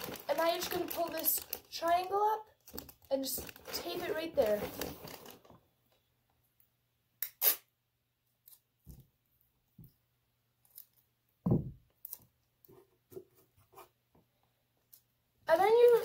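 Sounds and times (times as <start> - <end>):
paper rustling: 0.0 - 5.6
tape tearing: 7.2 - 7.7
soft thump: 11.5 - 11.8.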